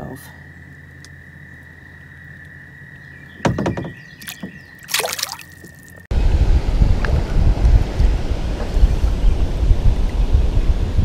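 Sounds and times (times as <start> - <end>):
fish splashing into water: 4.2 - 6.0
wind noise on microphone: 6.1 - 11.0.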